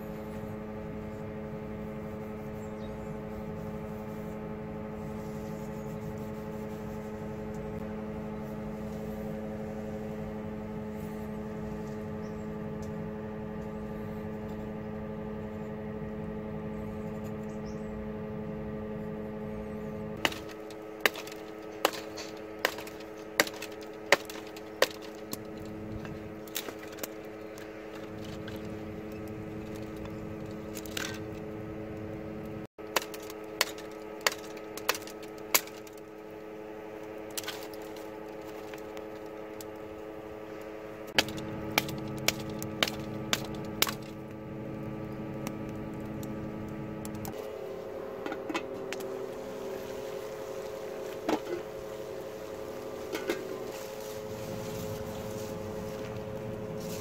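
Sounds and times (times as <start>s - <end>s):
wood sticks cracking: 20.2s - 31.4s, 32.8s - 36.4s, 37.0s - 39.9s, 40.6s - 46.4s.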